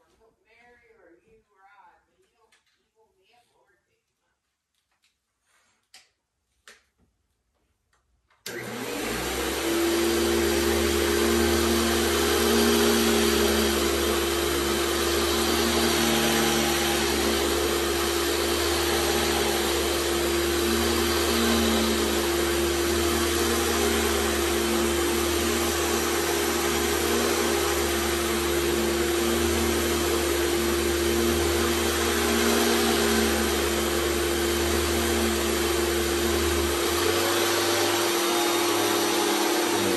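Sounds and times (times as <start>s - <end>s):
vacuum cleaner motor whining: 8.4s - 39.9s.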